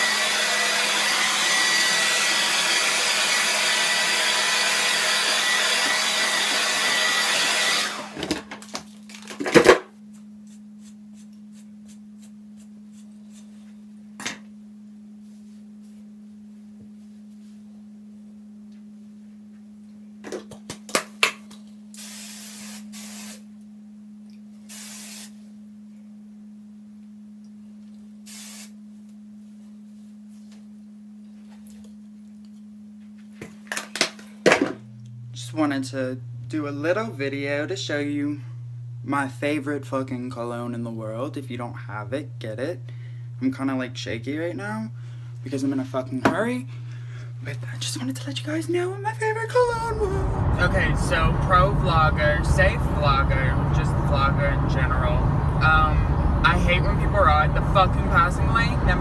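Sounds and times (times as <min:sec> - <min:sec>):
hair dryer blowing: 0:00.0 - 0:08.4, 0:49.7 - 0:59.0
short hisses: 0:24.7 - 0:25.4, 0:28.3 - 0:28.7
low hum: 0:34.8 - 0:43.4, 0:49.3 - 0:59.0.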